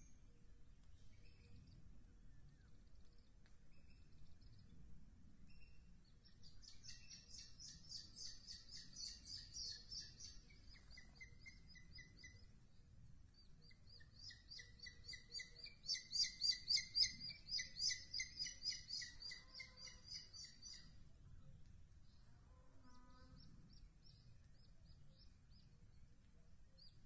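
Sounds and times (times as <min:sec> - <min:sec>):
eagle chick chirping: 0:06.6 - 0:12.5, 0:13.6 - 0:21.0.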